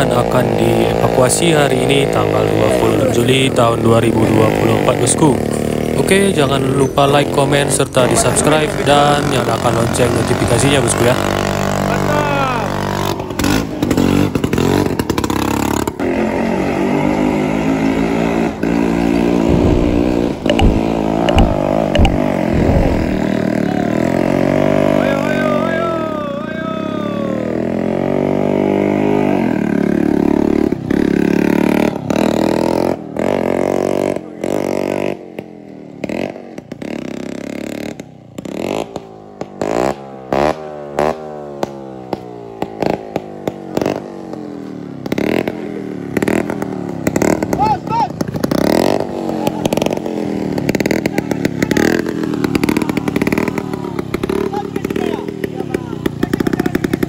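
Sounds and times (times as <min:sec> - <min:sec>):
cars passing: 0:00.0 - 0:57.0
motorcycle engines revving: 0:00.0 - 0:57.0
clatter on gravel road: 0:13.1 - 0:16.0, 0:19.5 - 0:23.3, 0:35.3 - 0:57.0.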